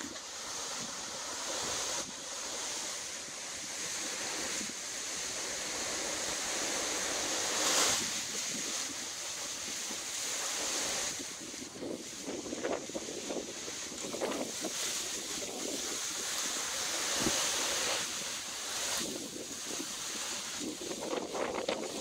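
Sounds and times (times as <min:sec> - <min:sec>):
wind rushing through palm fronds: 0:00.0 - 0:22.0
wind buffeting microphone: 0:07.8 - 0:22.0.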